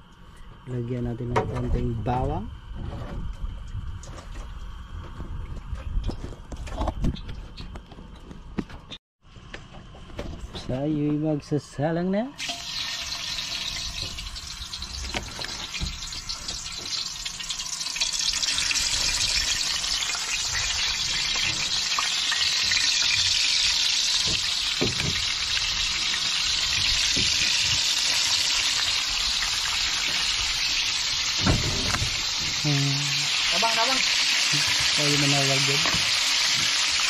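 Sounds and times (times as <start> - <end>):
fish frying in hot oil: 12.4 - 37.0.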